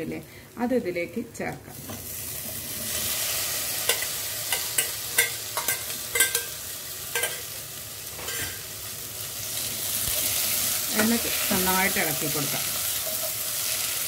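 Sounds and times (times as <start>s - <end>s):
food sizzling in a pot: 1.6s - 14.0s
spoon clinking and scraping pot: 3.8s - 7.5s, 8.2s - 8.6s.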